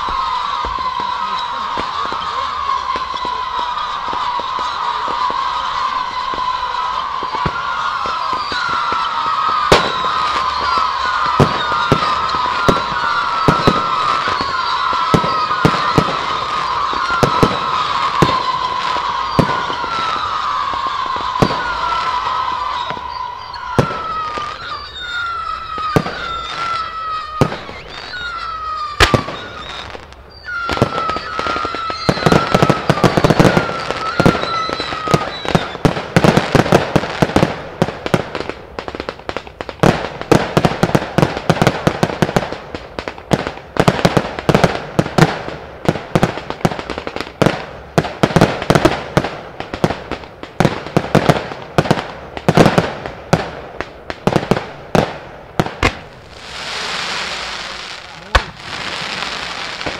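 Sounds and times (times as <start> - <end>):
high falling whistle: 0.0 - 36.7, 55.9 - 59.9
firework crackle: 0.0 - 59.9
fireworks bursting: 0.0 - 59.9.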